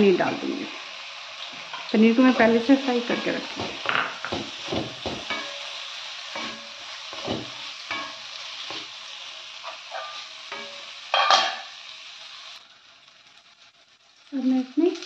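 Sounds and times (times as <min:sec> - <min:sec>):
vegetables sizzling in oil: 0:00.0 - 0:15.0.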